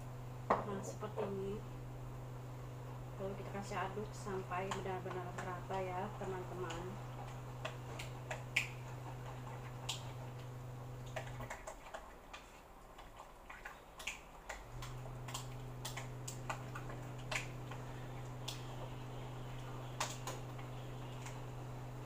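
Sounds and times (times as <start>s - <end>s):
hands squishing chicken in bowl: 6.7s - 21.5s
low hum: 14.6s - 22.0s.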